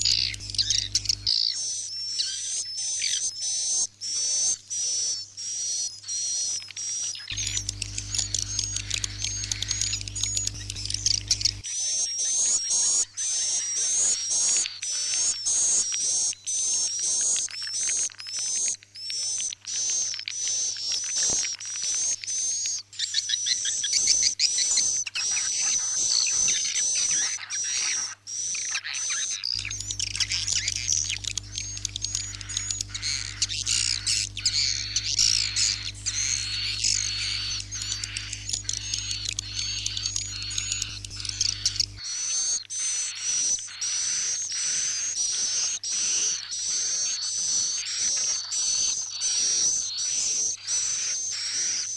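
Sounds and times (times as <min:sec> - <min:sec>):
steady low hum: 0:00.0 - 0:01.4, 0:07.3 - 0:11.6, 0:29.6 - 0:42.0
swiftlets twittering: 0:00.0 - 0:01.5, 0:07.3 - 0:11.6, 0:29.5 - 0:42.2.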